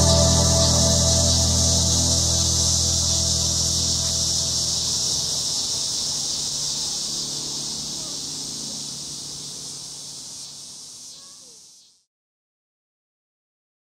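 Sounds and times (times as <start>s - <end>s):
faint background music: 0.0s - 6.0s
cicada buzzing: 0.0s - 12.0s.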